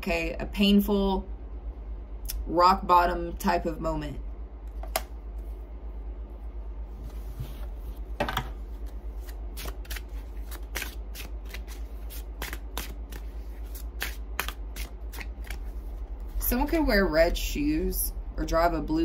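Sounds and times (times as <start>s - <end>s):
cards being shuffled: 8.4s - 16.3s.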